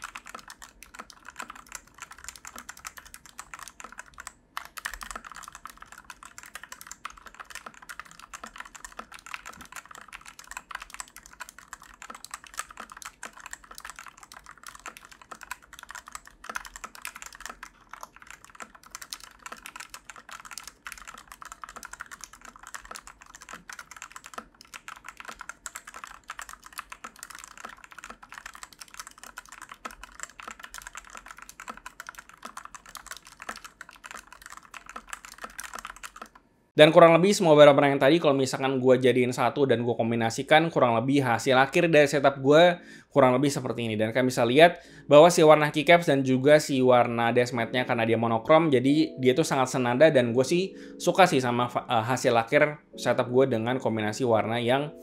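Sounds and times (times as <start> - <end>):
mechanical keyboard typing: 0.0 - 36.4.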